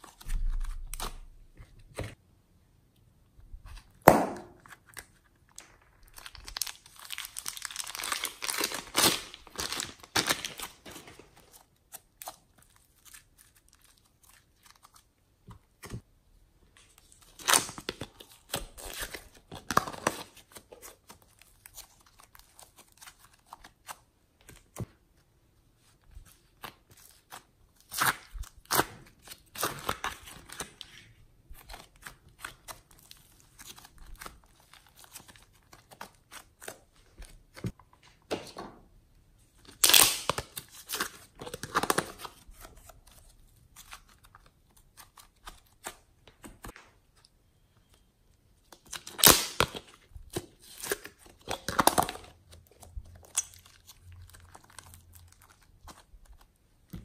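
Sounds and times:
slime and foam clay crackling: 0:03.6 - 0:37.8, 0:39.4 - 0:47.4, 0:48.5 - 0:57.0
plastic wrap crinkle: 0:05.0 - 0:11.5.

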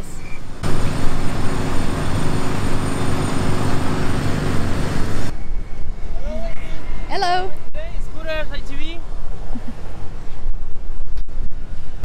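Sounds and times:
construction machinery engine drone: 0:00.0 - 0:05.4.

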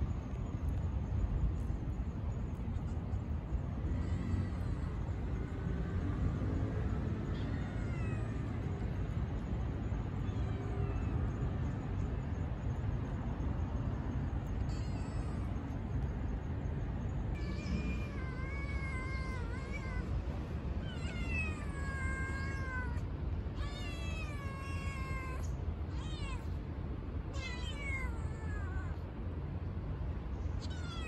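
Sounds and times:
steady low background noise: 0:00.0 - 0:31.0
kitten meowing: 0:30.6 - 0:31.0.

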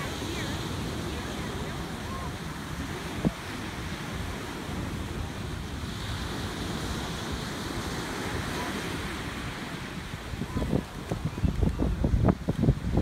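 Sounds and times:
surf washing onto beach: 0:00.0 - 0:13.0
wind buffeting microphone: 0:00.0 - 0:13.0.

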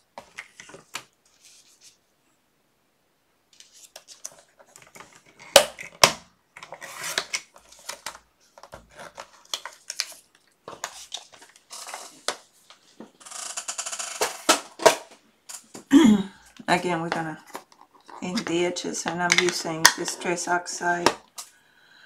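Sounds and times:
paper rustling: 0:00.2 - 0:02.0, 0:03.6 - 0:05.4, 0:06.7 - 0:13.1.

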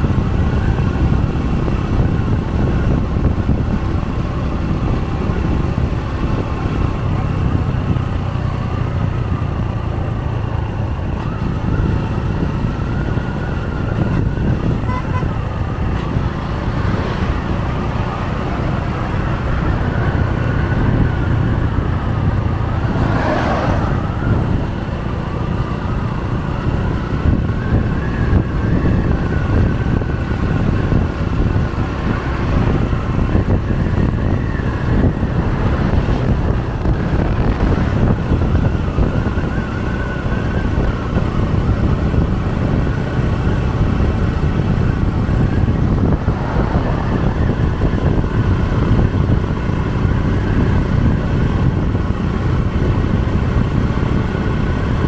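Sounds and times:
vehicle engine and road noise: 0:00.0 - 0:55.0
vehicle rushing past: 0:15.7 - 0:26.0, 0:30.9 - 0:38.9, 0:44.0 - 0:49.5.

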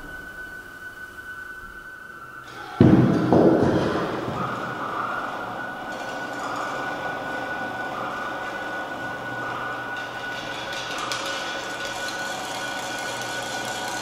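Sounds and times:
mechanical drone with high tone: 0:00.0 - 0:14.0.

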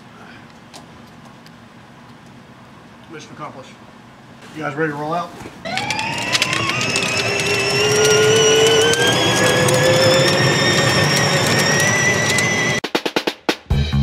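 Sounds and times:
electric motor whining: 0:05.6 - 0:12.8
clicks: 0:05.7 - 0:12.8.

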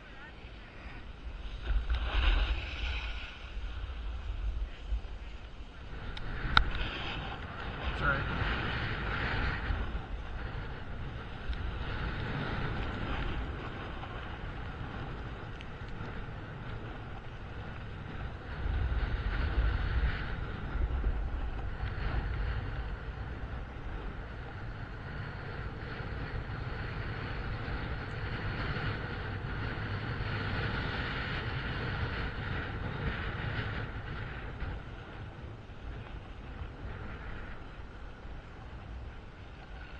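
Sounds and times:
skis sliding on packed snow: 0:00.0 - 0:39.9
wind buffeting microphone: 0:00.0 - 0:39.9.

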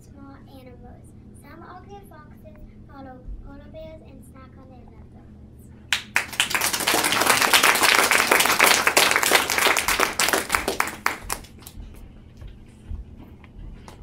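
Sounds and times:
children clapping: 0:05.9 - 0:11.8.

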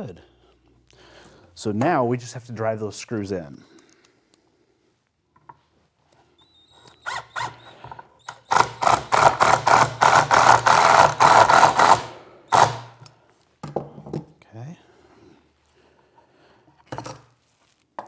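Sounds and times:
impact driver hammering screws: 0:07.0 - 0:13.1.

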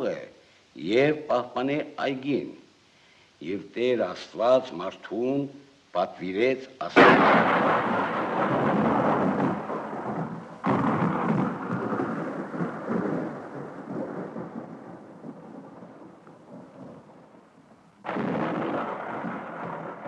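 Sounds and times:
rain: 0:00.0 - 0:20.0
thunder clap rolling: 0:07.0 - 0:20.0.

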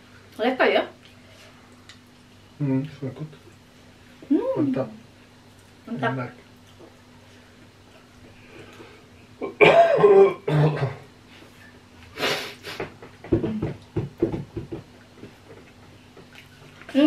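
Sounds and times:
person coughing: 0:09.4 - 0:11.0.

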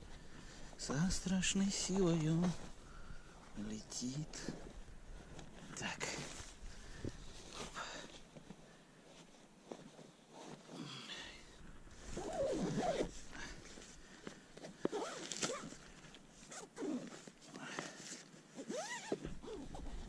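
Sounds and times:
nylon fabric rustling: 0:00.0 - 0:20.0
zippers: 0:12.0 - 0:13.2, 0:14.7 - 0:15.8, 0:16.4 - 0:20.0.

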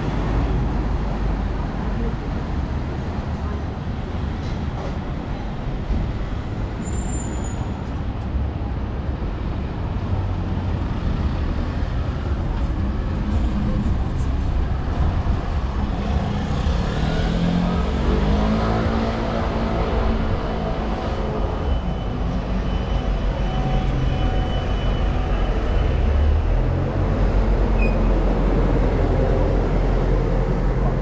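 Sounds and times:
bus diesel engine: 0:00.0 - 0:31.0
cars passing: 0:08.0 - 0:31.0.

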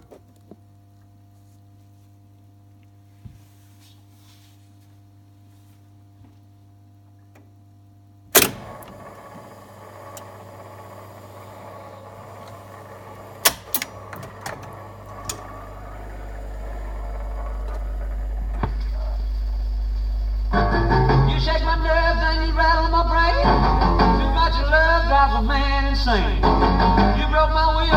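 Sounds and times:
jukebox mechanism clunk: 0:08.3 - 0:19.2
mechanical clatter and clicks: 0:08.4 - 0:19.2
low rumble: 0:14.0 - 0:27.9.

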